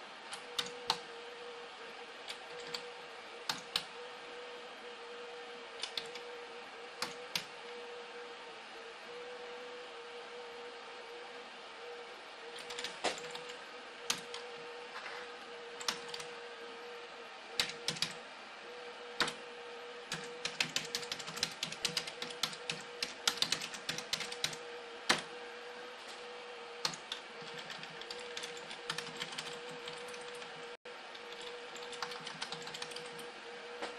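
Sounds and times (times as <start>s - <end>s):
faint steady hum: 0.0s - 33.9s
computer keyboard typing: 0.3s - 1.1s, 2.2s - 4.1s, 5.7s - 7.7s, 12.5s - 14.6s, 15.7s - 16.4s, 17.6s - 18.2s, 20.1s - 25.2s, 26.8s - 33.3s.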